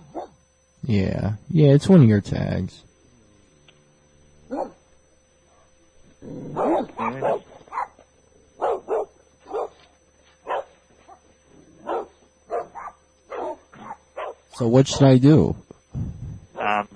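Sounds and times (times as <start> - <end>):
dog barking: 0.1 - 0.4, 4.5 - 4.8, 6.5 - 8.0, 8.6 - 9.8, 10.4 - 11.2, 11.8 - 14.5.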